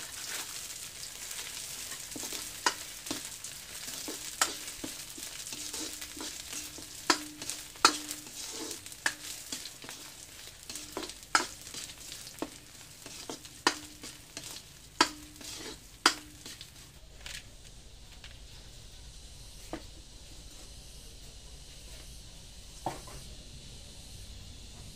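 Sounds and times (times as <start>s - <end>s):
spatula scraping metal wok: 0.0s - 17.0s
fish sizzling in oil: 0.0s - 22.2s.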